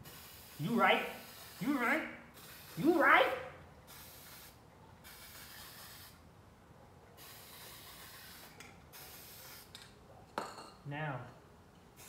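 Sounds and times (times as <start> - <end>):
aerosol spray can hissing: 0.0 - 1.8, 2.4 - 3.0, 3.9 - 6.2, 7.2 - 9.7.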